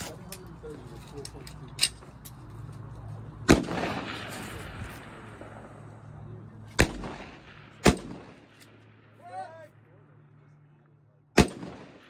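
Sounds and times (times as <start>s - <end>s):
rifle shots with echo: 3.4s - 9.2s, 11.3s - 12.0s.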